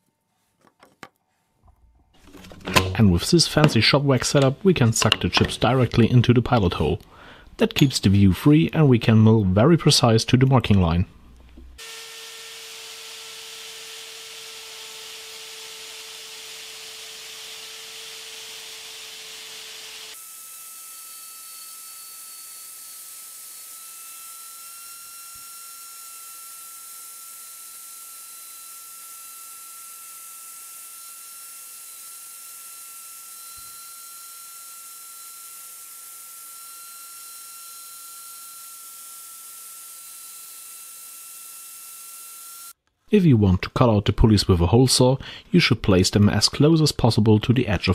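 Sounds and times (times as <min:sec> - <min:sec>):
shop vacuum hissing: 0:11.8 - 0:29.4
wood router whining: 0:11.8 - 0:42.8.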